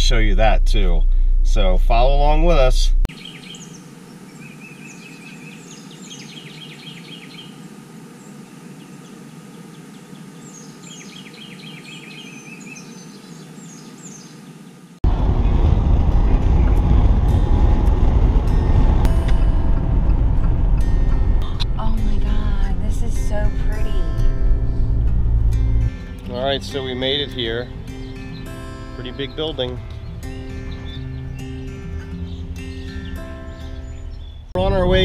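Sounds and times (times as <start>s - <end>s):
songbirds singing: 3.1s - 15.6s, 20.5s - 35.0s
road and engine noise inside car: 15.0s - 25.9s.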